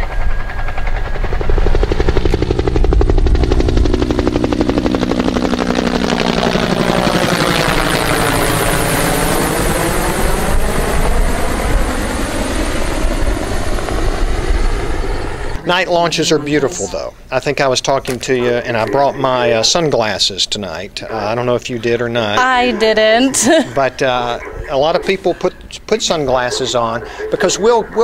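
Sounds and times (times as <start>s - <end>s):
helicopter rotor chop: 0.0s - 20.7s.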